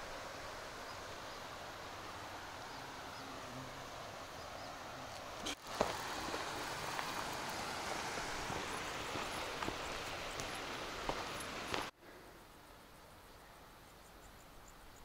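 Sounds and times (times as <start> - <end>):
outdoor background noise: 0.0 - 15.0
footsteps on dirt trail: 5.1 - 11.9.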